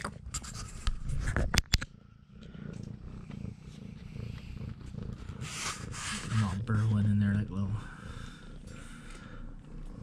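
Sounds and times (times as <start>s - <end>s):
cat purring: 0.0s - 10.0s.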